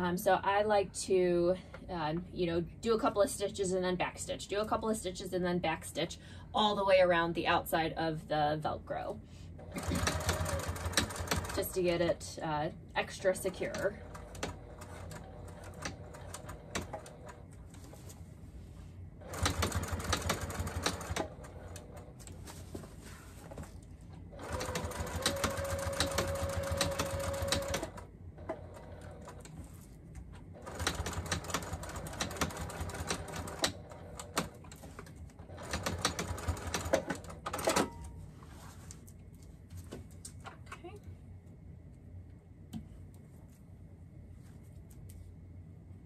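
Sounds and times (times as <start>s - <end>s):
sewing machine stitching: 9.6s - 11.6s, 19.2s - 22.1s, 24.4s - 29.5s, 30.6s - 37.9s.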